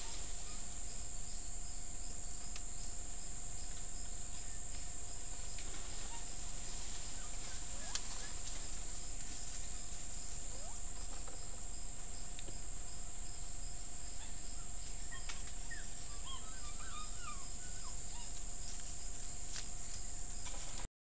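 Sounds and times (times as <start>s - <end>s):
steady hiss: 0.0s - 16.0s
constant high tone: 5.8s - 12.0s, 14.1s - 18.8s.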